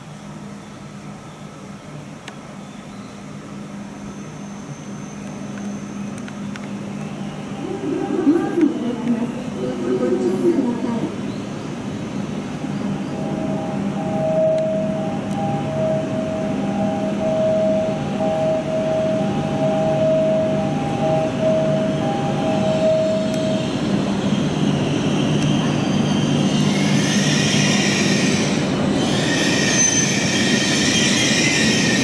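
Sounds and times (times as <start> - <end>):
train low hum: 0.0 - 32.0
high-pitched brake squeal: 4.0 - 6.2, 21.7 - 32.0.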